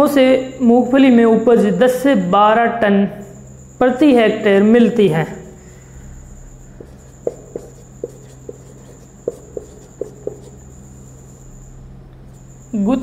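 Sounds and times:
marker writing on whiteboard: 0:06.6 - 0:11.6.

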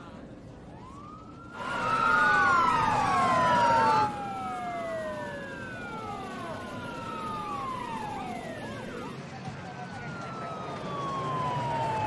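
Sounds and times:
emergency sirens wailing: 0:00.0 - 0:12.0.

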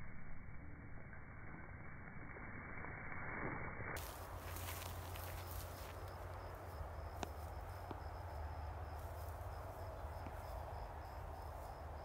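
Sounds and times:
low rumble: 0:00.0 - 0:09.0
insect chirping: 0:04.0 - 0:12.0.

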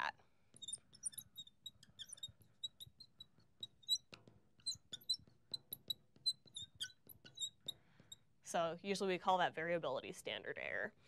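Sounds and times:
marker squeaking on glass: 0:00.0 - 0:08.2.

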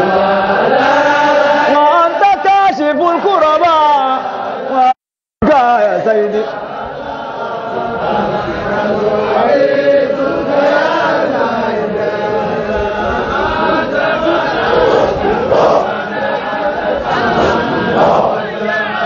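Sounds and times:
men chanting together: 0:00.0 - 0:04.9, 0:05.9 - 0:19.0.

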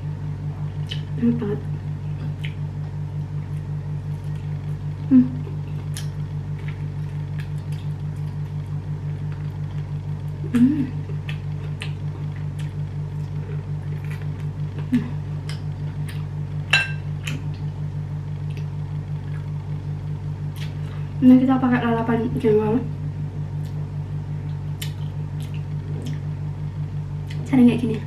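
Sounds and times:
steady low hum: 0:00.0 - 0:28.0
chewing: 0:11.1 - 0:16.3, 0:24.5 - 0:26.3.

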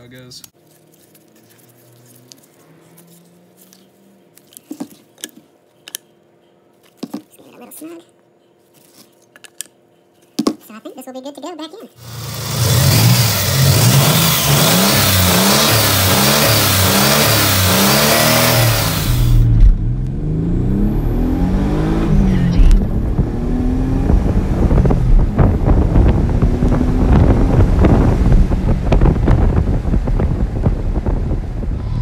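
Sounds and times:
car engine revving: 0:12.0 - 0:32.0.

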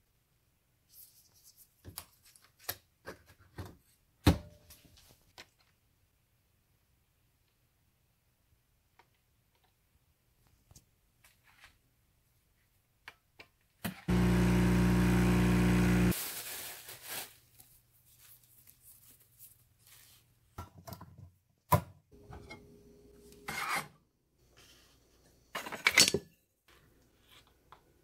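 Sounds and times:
can opener cranking: 0:14.1 - 0:16.1
coffee machine pump buzzing: 0:14.1 - 0:16.2.

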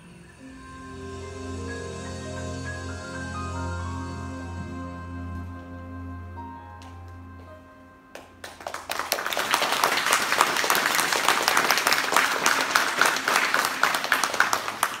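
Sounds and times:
audience applause: 0:08.1 - 0:15.0.

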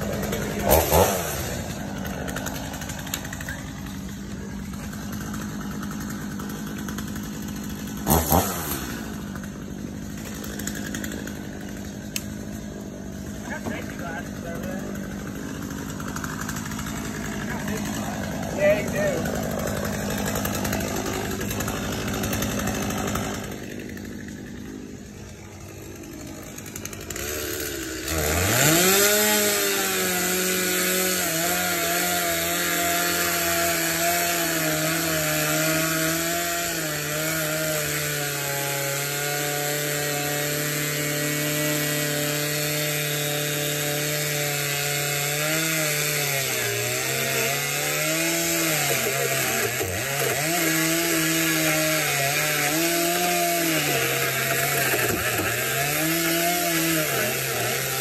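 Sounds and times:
chainsaw cutting fibreglass: 0:00.0 - 0:58.0.

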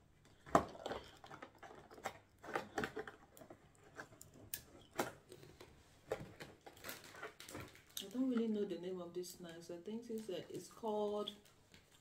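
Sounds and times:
plastic box crackling and clicking: 0:00.3 - 0:08.5.

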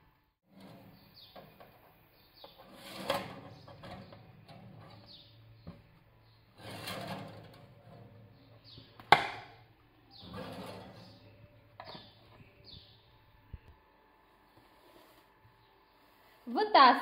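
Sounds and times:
metal tins scraping on wire rack: 0:02.5 - 0:05.3, 0:06.5 - 0:08.3, 0:10.2 - 0:11.3.

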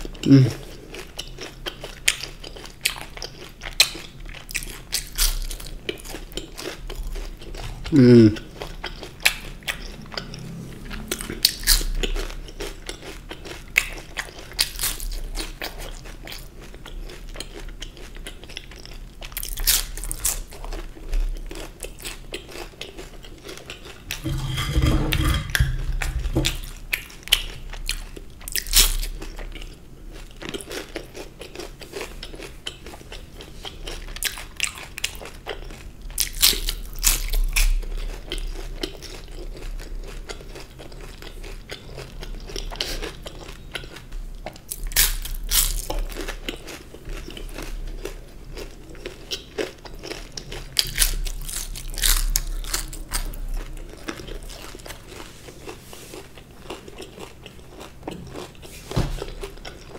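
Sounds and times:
chewing: 0:00.0 - 0:59.9
crunchy food bitten: 0:33.8 - 0:58.6.

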